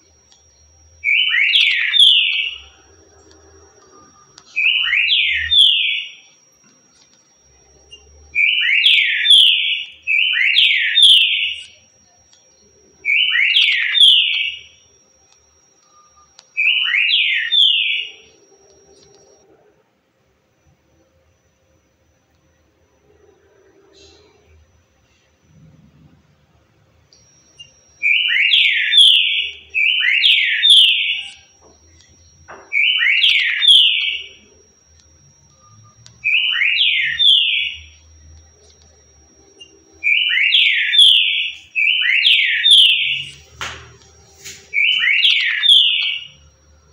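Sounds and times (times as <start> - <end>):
bird whistling song: 44.7 - 46.4.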